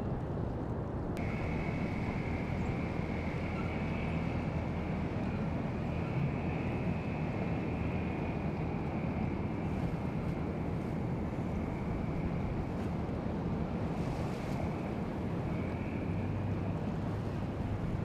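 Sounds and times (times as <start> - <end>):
boat engines droning: 0.0 - 18.0
water noise: 0.0 - 18.0
wind: 0.0 - 18.0
high whine: 1.1 - 13.0.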